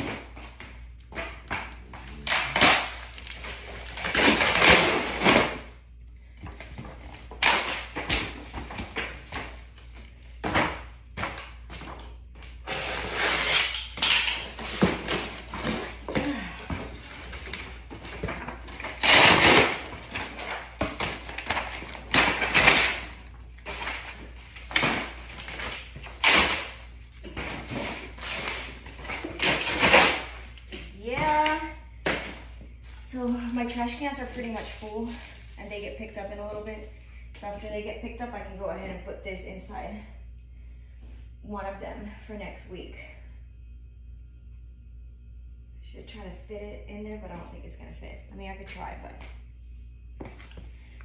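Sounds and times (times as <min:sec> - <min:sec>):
cardboard ripping and scraping: 0:12.6 - 0:16.2, 0:16.8 - 0:30.4.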